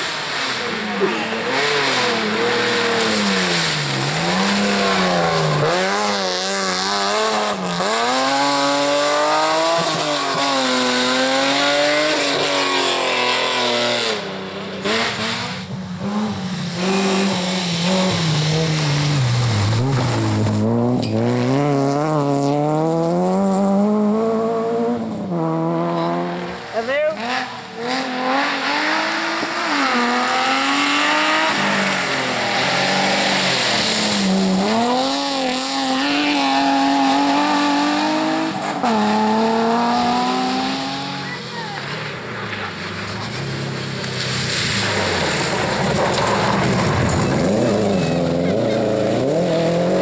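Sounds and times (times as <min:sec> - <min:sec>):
rally car engines revving: 0:00.0 - 0:50.0
tyres on loose gravel: 0:41.2 - 0:48.8.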